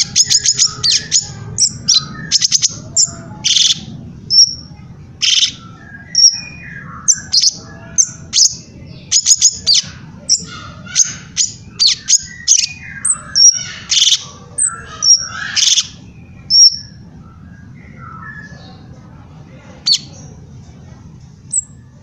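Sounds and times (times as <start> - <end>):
bird singing: 0.0 - 20.4, 21.4 - 22.0.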